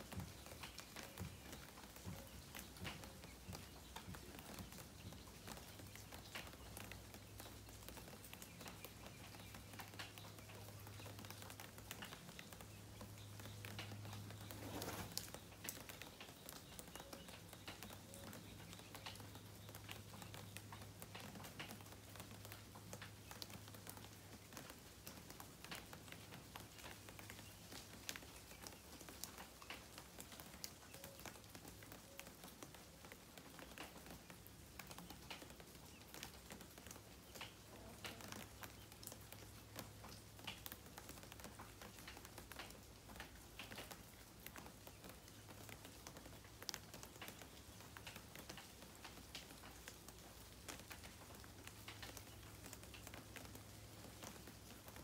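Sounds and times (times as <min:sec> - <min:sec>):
light rain pattering: 0:00.0 - 0:55.0
water dripping: 0:00.0 - 0:55.0.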